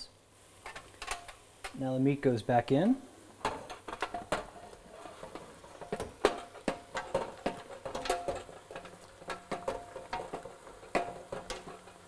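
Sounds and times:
wooden spoon scraping metal pan: 3.5s - 12.0s.

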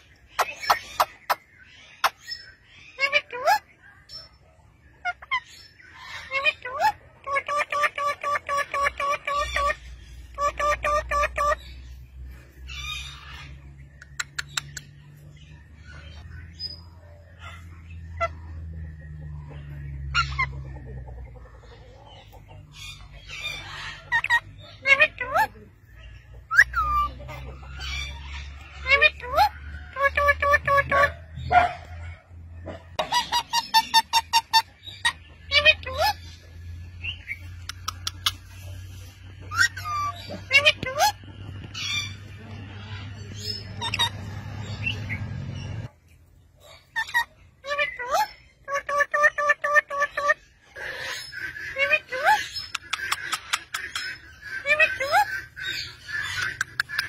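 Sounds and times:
parakeets squawking: 0.0s - 3.7s, 5.0s - 18.7s, 19.4s - 20.8s, 21.4s - 46.0s, 46.6s - 57.0s
parakeets giving harsh calls: 5.0s - 11.9s, 39.4s - 45.7s, 46.6s - 57.0s.

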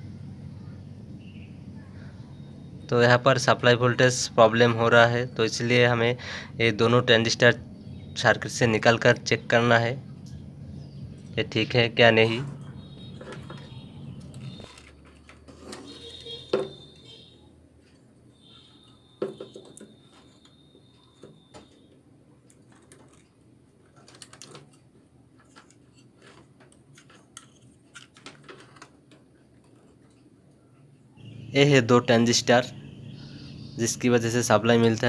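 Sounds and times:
circuit board being handled: 12.4s - 18.0s, 18.8s - 30.4s.

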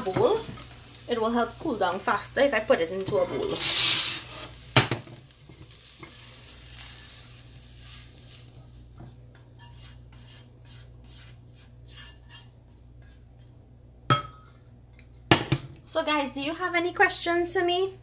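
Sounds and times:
food sizzling faintly: 0.0s - 13.6s
spoon scraping food from a pan: 3.0s - 4.6s, 9.3s - 13.6s.

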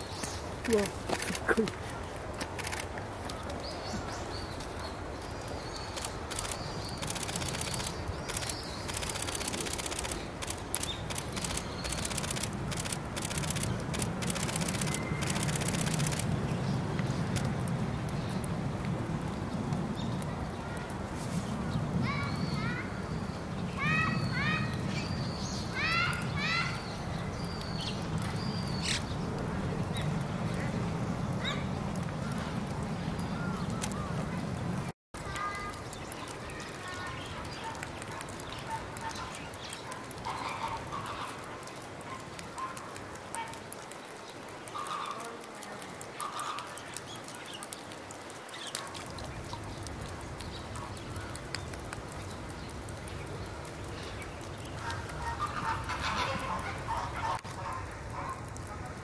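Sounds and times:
murmur of people outdoors: 0.0s - 16.2s, 54.4s - 59.0s
faint clicks and ticks: 0.2s - 3.7s, 4.6s - 20.9s, 33.6s - 34.1s, 35.2s - 59.0s.

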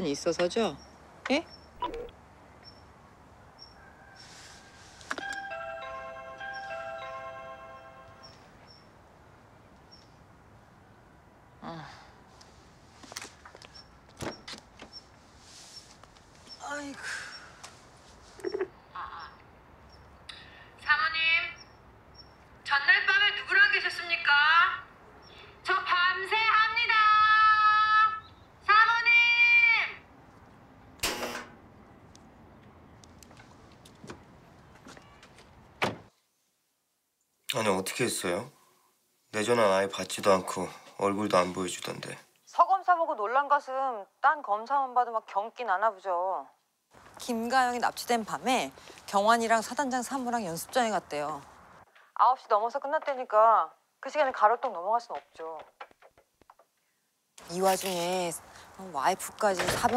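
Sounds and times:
faint outdoor background: 0.0s - 59.9s
low street background: 0.0s - 59.9s
car door clicks and knocks: 35.8s - 36.1s.

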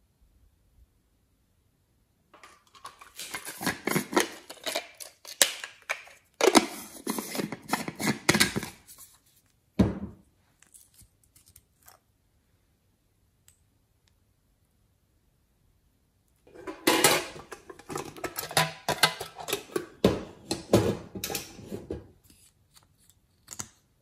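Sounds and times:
metal spatula scraping plastic: 2.4s - 9.2s, 16.5s - 23.2s.

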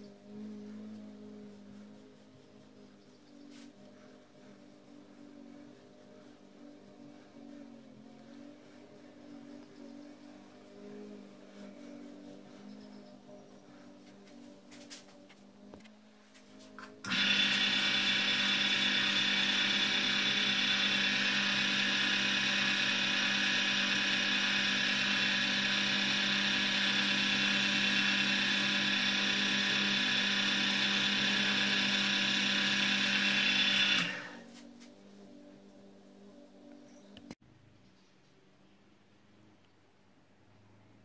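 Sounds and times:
wood lathe motor whine: 16.8s - 34.5s.

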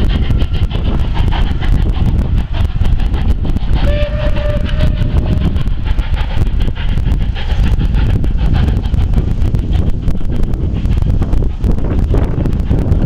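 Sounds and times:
train rumbling on track: 0.0s - 13.0s
steam whistle: 3.8s - 5.4s.

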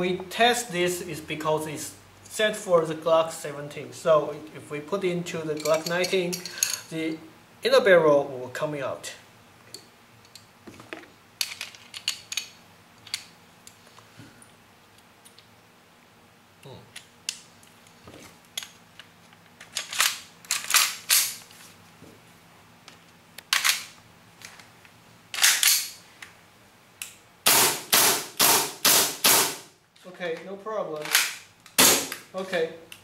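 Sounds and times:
pistol parts clicking: 25.4s - 26.0s.

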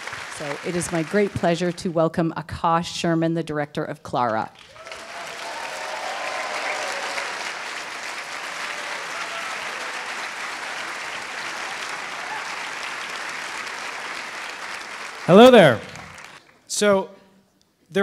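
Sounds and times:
large audience applauding: 0.0s - 1.9s, 4.6s - 16.6s.

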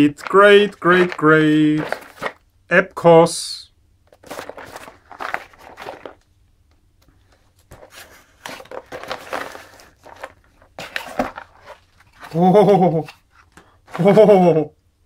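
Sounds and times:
cardboard scraping and rustling: 0.2s - 2.4s, 4.2s - 6.2s, 7.7s - 12.4s.

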